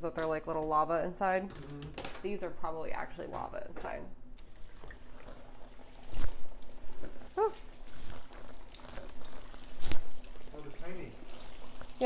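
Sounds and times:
hot oil sizzling and bubbling: 0:04.4 - 0:12.0.

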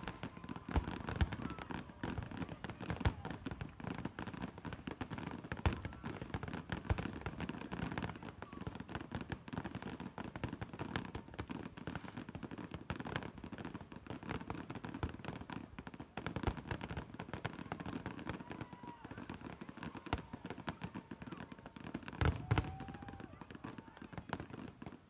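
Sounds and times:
fireworks crackling: 0:00.0 - 0:25.0
firework bangs: 0:16.4 - 0:24.4.

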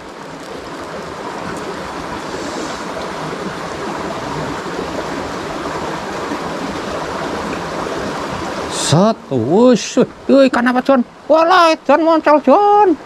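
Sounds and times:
river water rushing: 0:00.0 - 0:13.0.

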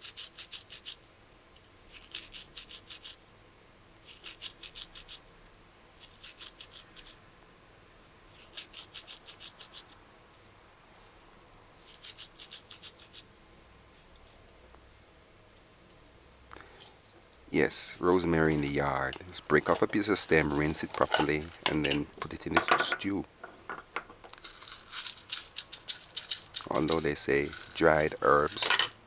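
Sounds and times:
hands rubbing dried herbs: 0:00.0 - 0:01.0, 0:01.9 - 0:03.2, 0:03.9 - 0:05.2, 0:06.0 - 0:07.2, 0:08.3 - 0:13.3, 0:13.9 - 0:22.6, 0:24.3 - 0:28.7.

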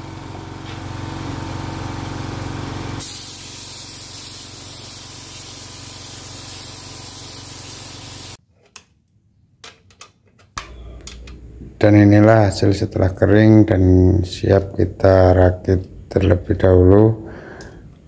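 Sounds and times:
paint spray gun hissing: 0:03.0 - 0:08.4.

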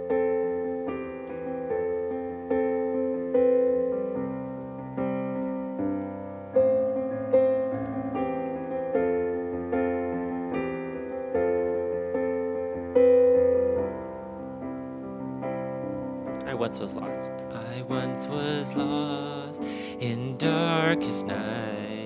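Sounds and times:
piano playing slow chords: 0:00.0 - 0:22.0.

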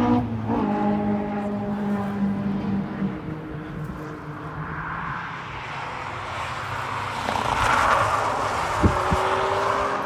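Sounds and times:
race cars rumbling: 0:00.0 - 0:10.0
tyre and wind rush of car: 0:00.0 - 0:10.0.

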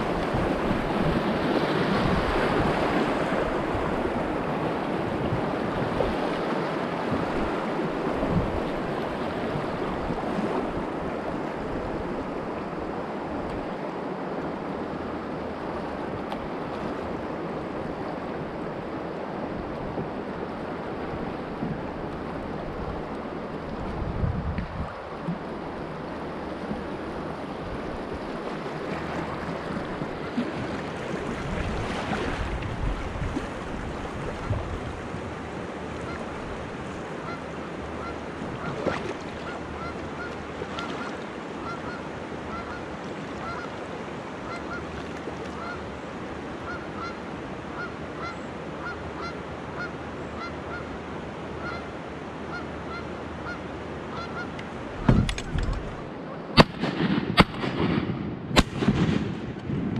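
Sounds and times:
wind on microphone: 0:00.0 - 0:13.8, 0:19.4 - 0:25.8, 0:26.7 - 0:37.4, 0:54.8 - 0:59.9
river water rushing: 0:00.0 - 0:56.7
geese honking: 0:37.2 - 0:43.8, 0:44.4 - 0:44.9, 0:45.6 - 0:45.8, 0:46.6 - 0:47.2, 0:47.8 - 0:50.9, 0:51.6 - 0:51.9, 0:52.5 - 0:55.2.

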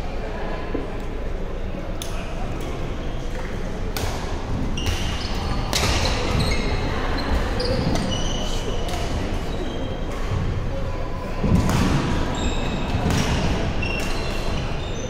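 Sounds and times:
murmur of voices: 0:00.0 - 0:15.0
shoes squeaking on floor: 0:04.7 - 0:10.1, 0:12.2 - 0:13.1, 0:13.7 - 0:15.0
volleyball strikes: 0:11.5 - 0:14.3.

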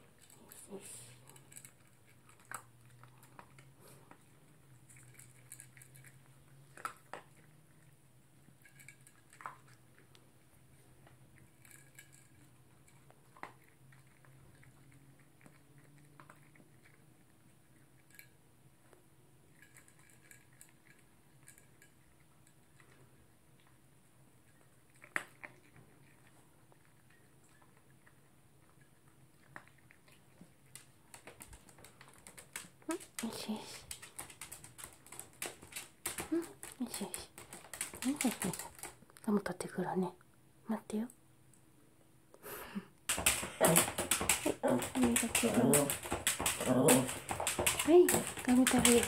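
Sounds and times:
dog crunching food in plastic bowl: 0:00.0 - 0:18.3, 0:24.5 - 0:39.3, 0:43.1 - 0:49.0.

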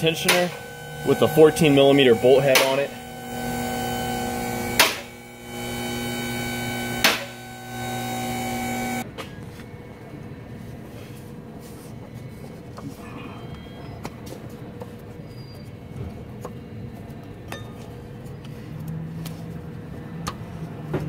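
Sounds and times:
electric motor humming: 0:00.0 - 0:09.0.

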